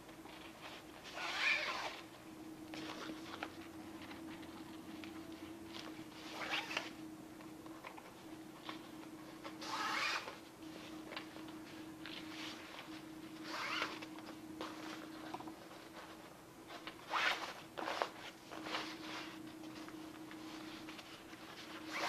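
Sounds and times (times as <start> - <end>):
nylon fabric rustling and scraping: 0.0 - 7.0, 9.5 - 22.0
cord rasping through webbing: 0.4 - 2.0.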